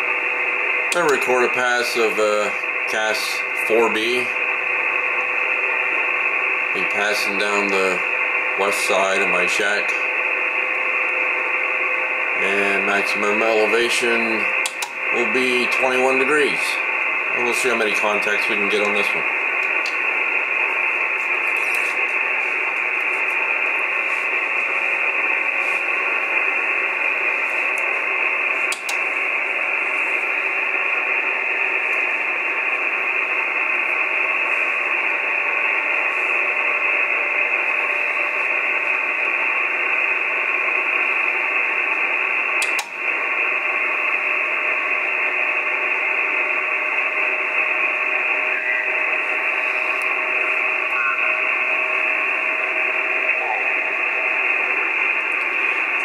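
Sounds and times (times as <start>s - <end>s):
radio receiver hiss: 0.0s - 56.0s.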